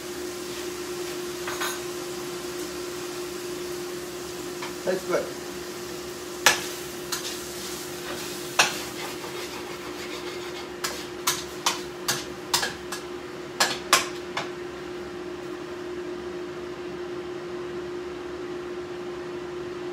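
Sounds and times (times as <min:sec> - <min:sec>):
utensils clinking against dishes: 0:01.4 - 0:01.9, 0:08.1 - 0:14.2.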